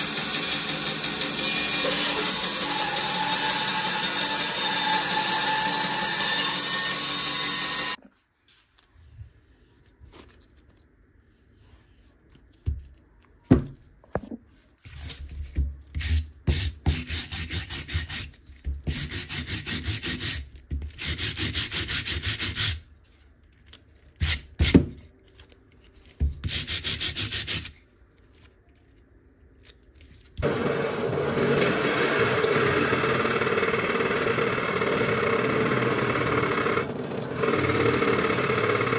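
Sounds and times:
drill press boring: 0.0 - 8.0, 30.4 - 38.9.

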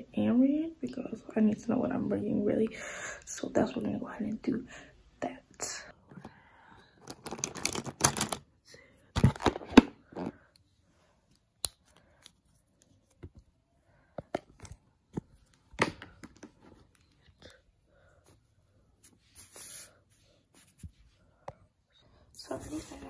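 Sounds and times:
pens clattering in plastic box: 7.0 - 8.5, 9.1 - 10.4.

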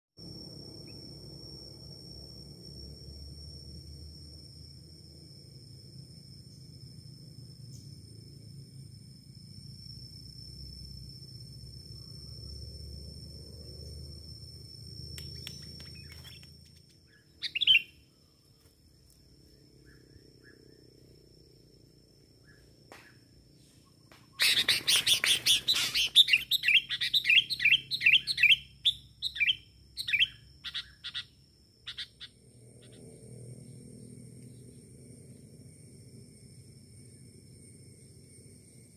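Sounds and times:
bird chirping notes: 17.1 - 18.0, 24.4 - 31.3
bulbul calling: 17.1 - 18.0, 24.4 - 31.3.

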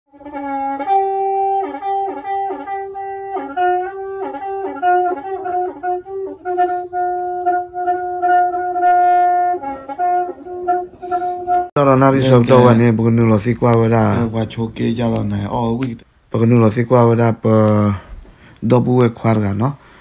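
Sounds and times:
wind instrument melody: 0.1 - 13.2.

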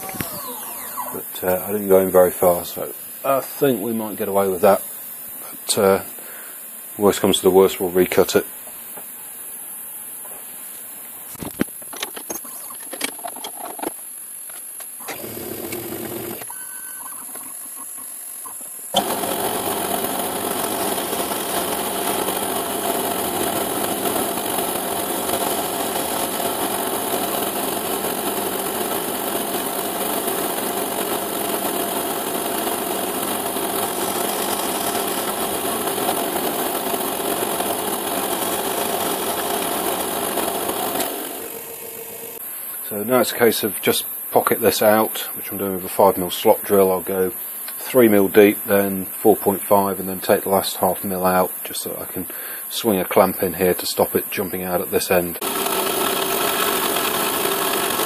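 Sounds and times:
milling machine drilling plastic: 0.0 - 2.6, 12.2 - 42.4, 55.4 - 58.0
stepper motor hiss: 0.0 - 58.0.

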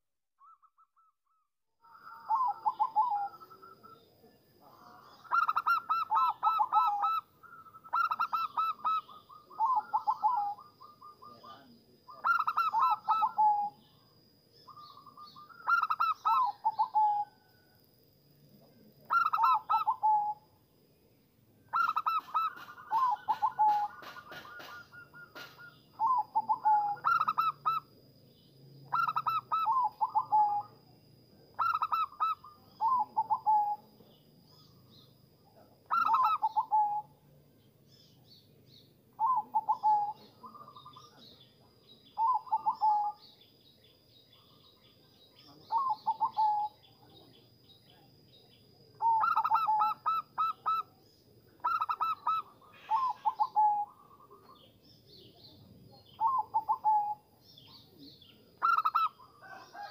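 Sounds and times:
dove cooing: 1.8 - 17.5, 18.7 - 20.4, 21.7 - 28.0, 28.8 - 35.0, 35.6 - 37.2, 39.1 - 43.4, 44.3 - 48.1, 48.9 - 59.9.

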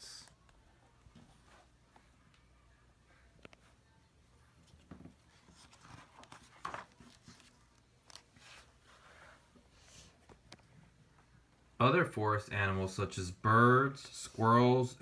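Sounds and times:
paper pages rustling: 4.7 - 10.6.

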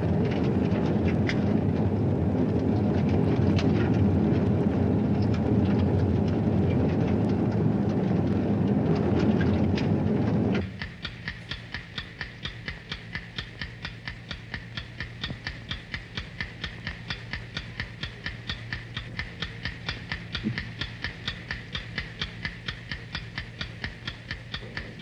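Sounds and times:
loud low rumble: 0.0 - 10.8
low hum: 0.0 - 25.0
rapid clock-like ticking: 0.0 - 25.0.

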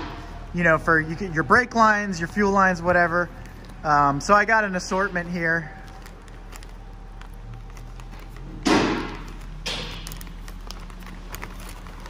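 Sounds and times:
plastic crinkling and clicks: 4.8 - 12.0
plastic bag thump: 8.5 - 10.2.

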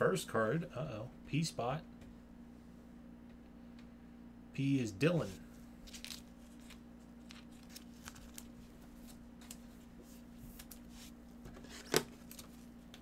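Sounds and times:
steady low hum: 0.0 - 13.0
plastic card sleeve rustling: 5.8 - 9.9, 10.5 - 12.7.

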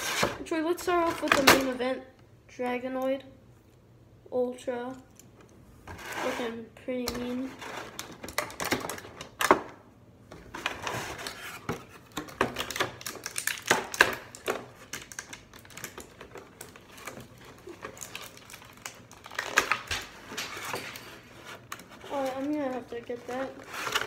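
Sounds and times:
plastic packaging crackling: 7.1 - 9.6, 10.4 - 24.0.

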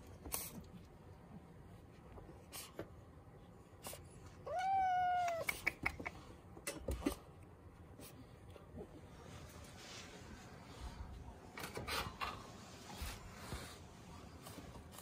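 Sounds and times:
cat meowing: 4.4 - 5.6.

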